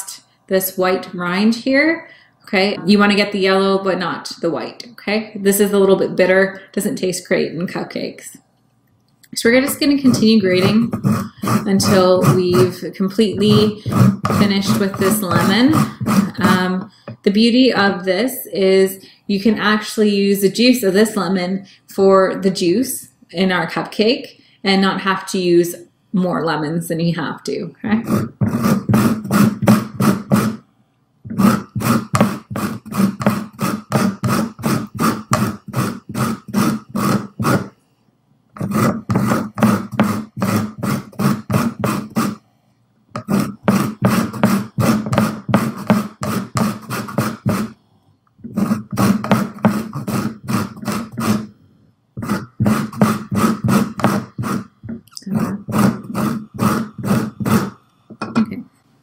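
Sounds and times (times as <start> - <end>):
lemon scraping on grater: 9.5 - 16.8, 28.0 - 30.6, 31.3 - 37.7, 38.6 - 42.4, 43.2 - 47.8, 48.4 - 51.5, 52.2 - 57.8.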